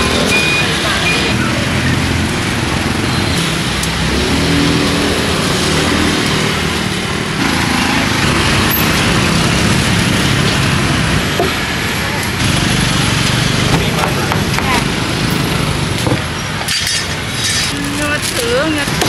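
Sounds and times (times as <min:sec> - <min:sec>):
street traffic engines: 0:00.0 - 0:19.0.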